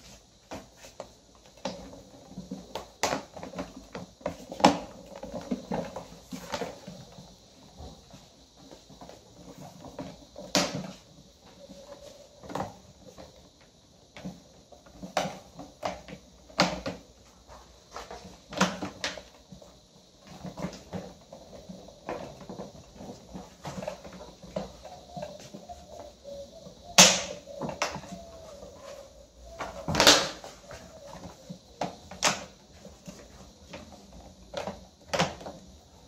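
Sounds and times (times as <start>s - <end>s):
plastic fan grille clicks and knocks: 29.6s - 35.6s.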